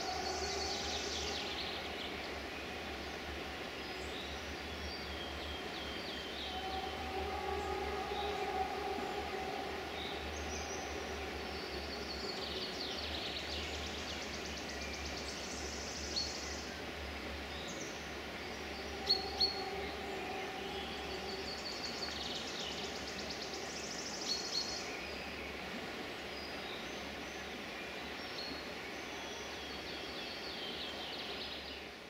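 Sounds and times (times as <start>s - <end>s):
faint low hum: 0.0s - 24.2s
outdoor background hiss: 0.0s - 32.0s
songbirds singing: 0.0s - 32.0s.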